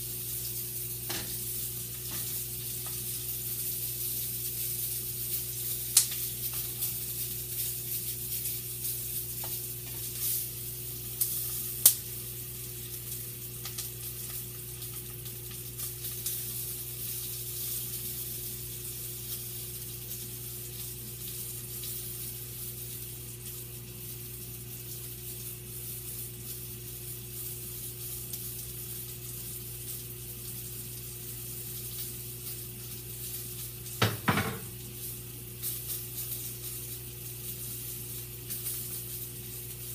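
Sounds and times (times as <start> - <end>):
sausages sizzling in a pan: 0.0 - 39.9
knock: 34.0 - 34.7.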